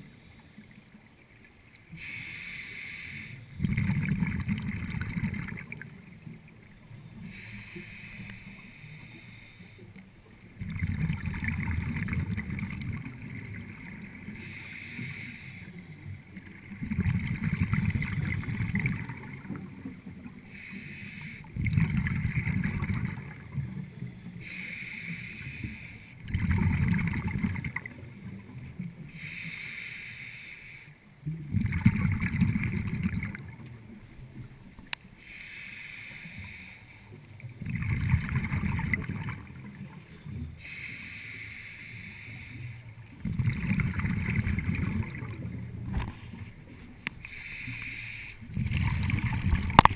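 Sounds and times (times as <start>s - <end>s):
hissing regulator inhale: 1.9s - 3.6s, 7.0s - 10.0s, 14.2s - 15.9s, 20.4s - 21.6s, 23.5s - 26.2s, 29.1s - 31.0s, 35.2s - 37.2s, 40.6s - 43.0s, 47.2s - 48.6s
bubbling exhale underwater: 3.6s - 5.9s, 10.6s - 13.7s, 16.8s - 19.8s, 21.6s - 23.6s, 26.2s - 28.1s, 31.4s - 33.7s, 37.6s - 40.0s, 43.2s - 46.2s, 48.4s - 49.9s.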